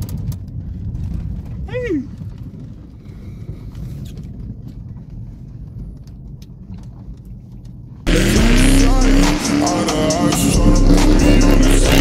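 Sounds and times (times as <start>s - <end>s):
car engine rumble inside cabin: 0.0s - 12.0s
car engine revving: 8.1s - 12.0s.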